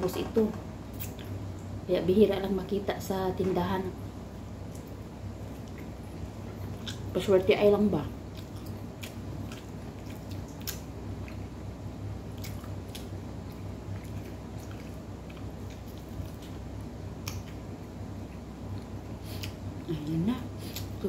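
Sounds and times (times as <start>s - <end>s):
low steady hum: 0.0s - 21.0s
chewing flatbread: 4.6s - 7.3s, 8.2s - 19.8s.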